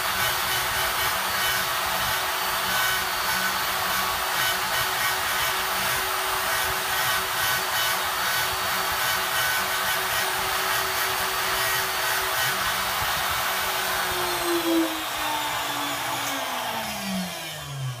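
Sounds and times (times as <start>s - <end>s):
homogenizer motor whine: 12.6s - 18.0s.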